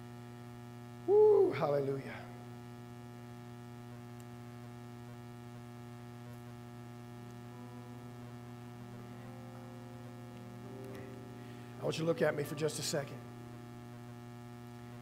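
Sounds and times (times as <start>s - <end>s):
steady low hum: 0.0s - 15.0s
electric keyboard pad chords: 7.5s - 13.6s.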